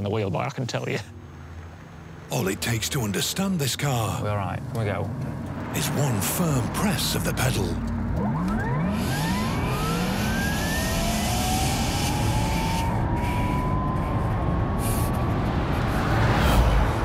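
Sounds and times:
tyre and road noise: 0:00.8 - 0:17.0
electric car motor whining: 0:08.1 - 0:15.4.

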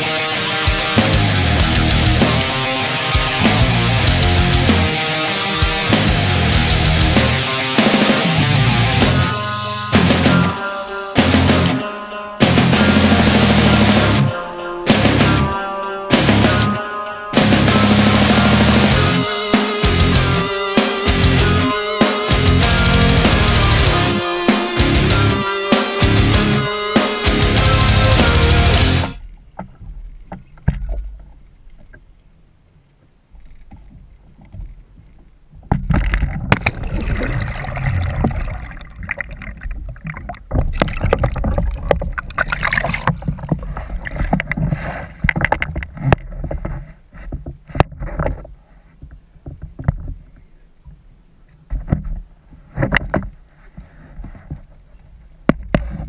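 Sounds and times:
muffled underwater sloshing: 0:29.2 - 0:51.1
water splashes: 0:32.9 - 0:46.8.

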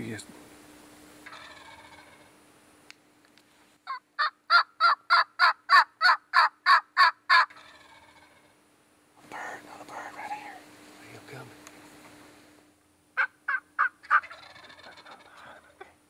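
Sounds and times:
turkey yelps: 0:01.2 - 0:02.3, 0:03.9 - 0:08.6, 0:13.2 - 0:15.8
faint calling: 0:13.2 - 0:16.0.

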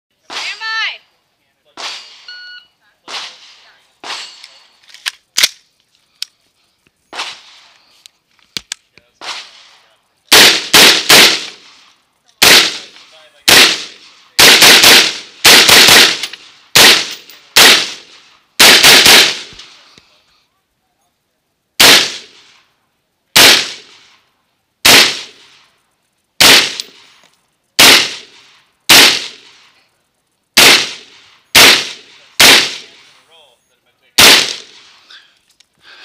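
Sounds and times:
rifle shots: 0:01.7 - 0:02.4, 0:03.0 - 0:05.6, 0:07.1 - 0:07.7, 0:09.2 - 0:19.8, 0:21.8 - 0:22.6, 0:23.4 - 0:24.2, 0:24.8 - 0:25.6, 0:26.4 - 0:27.1, 0:27.8 - 0:29.7, 0:30.6 - 0:33.2, 0:34.2 - 0:35.0.

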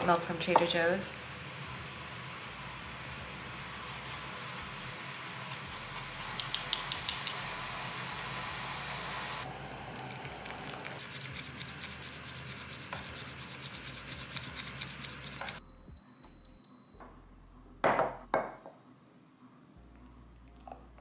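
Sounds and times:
bamboo whisk whisking tea: 0:09.9 - 0:15.6
ceramic mug knocking on counter: 0:17.8 - 0:18.8.

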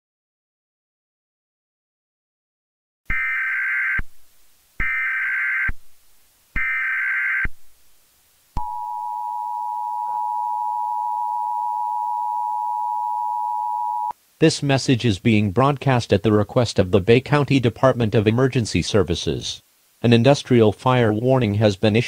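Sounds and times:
two-tone alert beep: 0:08.6 - 0:14.1.

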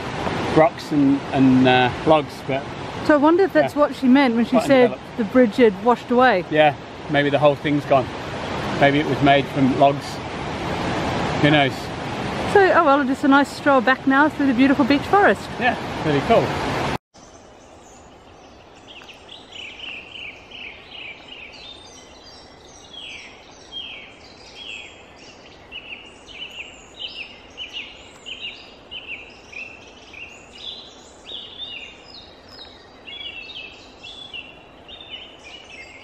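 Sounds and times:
faint background rush: 0:00.0 - 0:10.4
birds chirping and whistling: 0:17.2 - 0:36.0.

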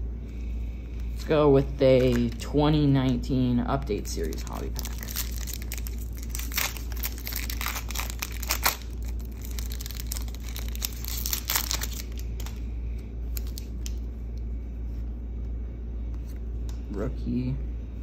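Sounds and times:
foil wrapper tearing and crinkling: 0:02.0 - 0:02.4, 0:04.1 - 0:12.6, 0:13.3 - 0:14.0.

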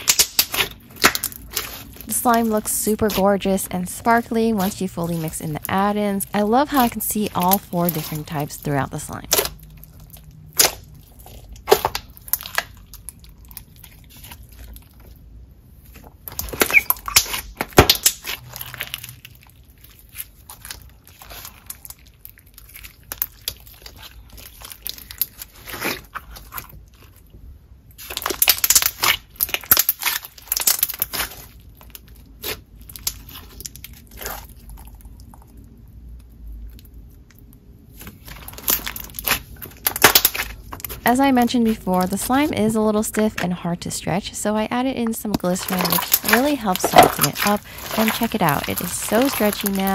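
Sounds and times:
beaded slime crunching: 0:00.0 - 0:15.2, 0:15.8 - 0:27.3, 0:27.9 - 0:35.6, 0:36.6 - 0:43.5, 0:44.5 - 0:49.9.

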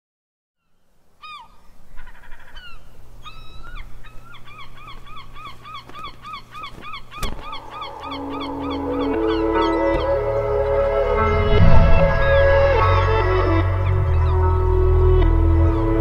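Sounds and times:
gulls calling: 0:01.2 - 0:16.0
low steady hum: 0:10.9 - 0:13.4.

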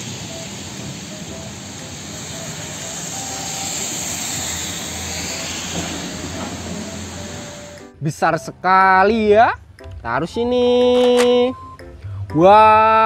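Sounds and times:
hiss of rain: 0:00.0 - 0:07.8
truck engine rumbling: 0:00.0 - 0:08.0.

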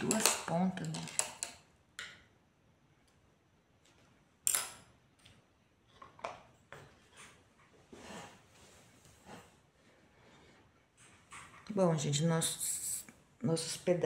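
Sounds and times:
small pots tapping on stone: 0:00.0 - 0:02.2.

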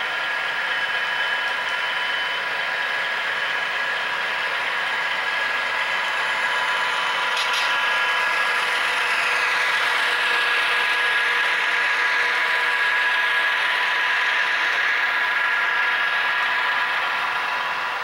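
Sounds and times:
constant whine: 0:00.0 - 0:18.0
model train rattling on track: 0:00.2 - 0:18.0.

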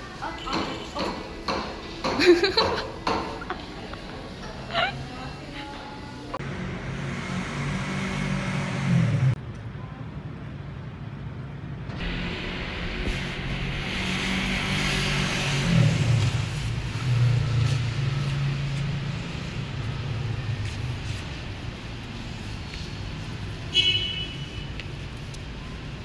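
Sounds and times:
steady traffic hum: 0:00.0 - 0:26.0
vehicle engine rumbling past: 0:06.4 - 0:09.4, 0:12.0 - 0:23.3.

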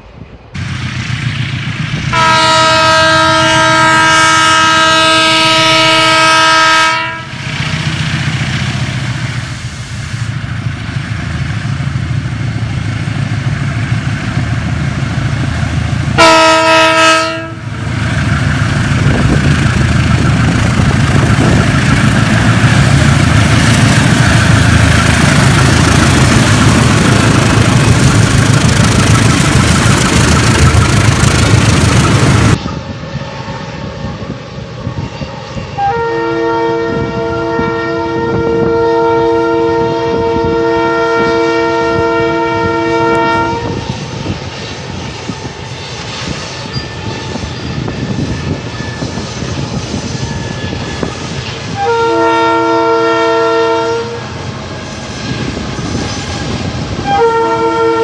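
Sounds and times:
locomotive horn blast: 0:02.1 - 0:07.5, 0:16.1 - 0:17.8, 0:35.8 - 0:43.9, 0:51.6 - 0:54.3, 0:57.0 - 0:58.0
diesel engines rumbling: 0:07.1 - 0:32.8.

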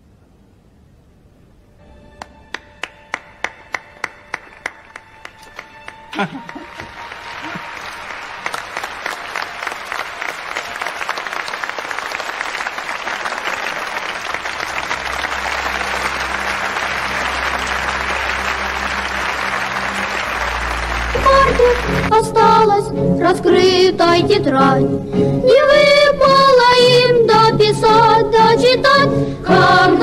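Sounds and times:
audience applauding: 0:02.2 - 0:22.2.

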